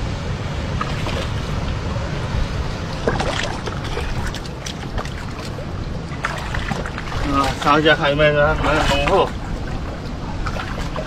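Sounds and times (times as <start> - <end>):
splashes and knocks of stones: 0.8 - 1.5, 2.9 - 8.0
engine-driven water pump running: 2.8 - 11.0.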